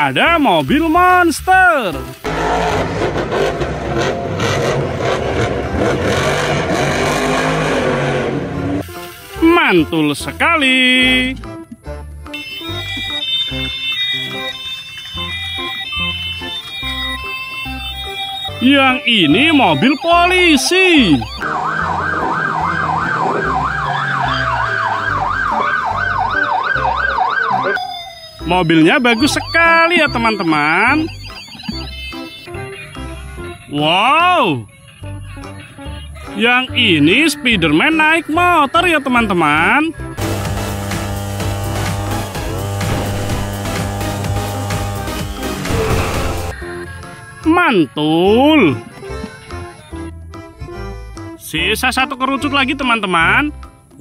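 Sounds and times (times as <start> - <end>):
monster truck engine revving: 2.1 - 8.8, 21.2 - 25.3, 40.2 - 46.6
police siren yelping: 12.4 - 35.2.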